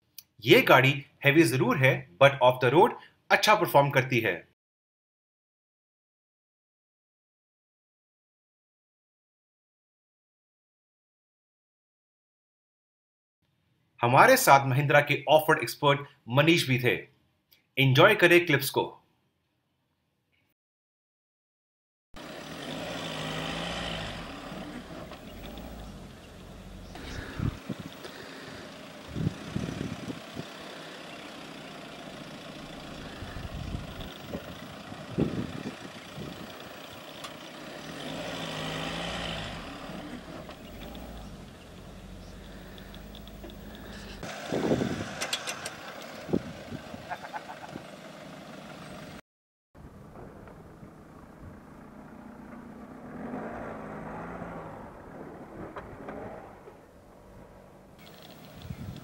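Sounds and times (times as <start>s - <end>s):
diesel engine working: 22.2s - 49.2s
tyres on loose dirt: 22.2s - 49.2s, 55.3s - 59.0s
sharp clicks: 42.7s - 43.9s.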